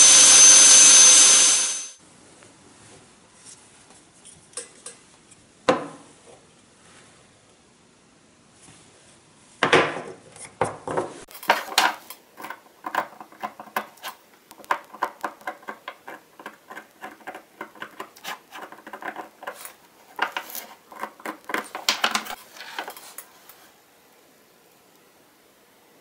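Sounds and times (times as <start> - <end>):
knife scraping wood: 14.9 - 23.6.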